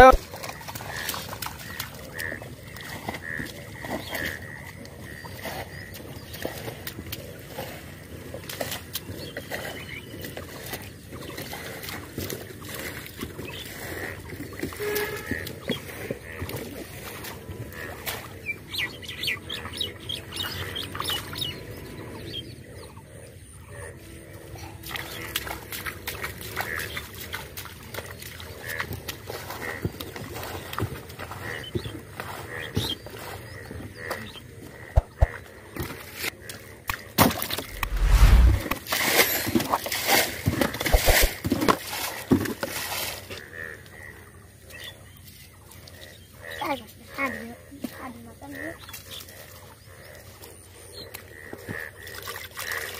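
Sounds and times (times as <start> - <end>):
splashing in shallow muddy water: 0.0 - 52.9
sharp thumps: 35.0 - 35.4.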